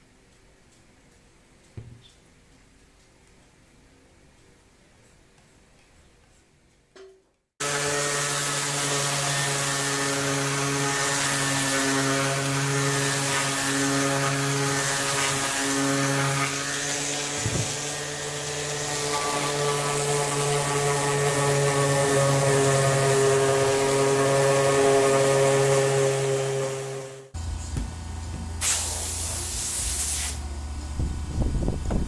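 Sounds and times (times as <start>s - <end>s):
electric orbital sander: 7.6s - 27.4s.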